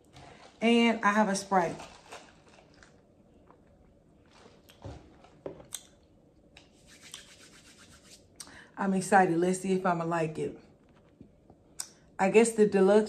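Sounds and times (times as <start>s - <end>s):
sipping through a straw: 6.7s - 8.3s.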